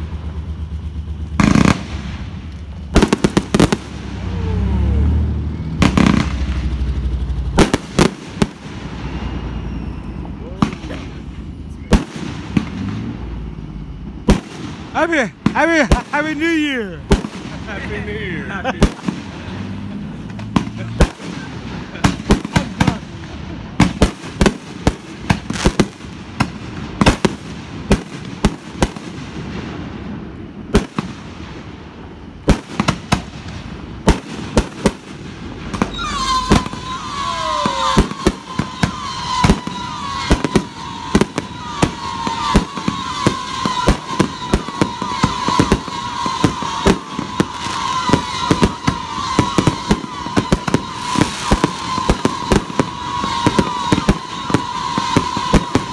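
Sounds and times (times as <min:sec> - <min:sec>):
firework bangs and pops: 0:00.0 - 0:04.4, 0:05.6 - 0:13.3, 0:14.0 - 0:55.9
firework crackling: 0:00.0 - 0:55.9
steady high tone: 0:04.0 - 0:05.8, 0:35.9 - 0:46.2.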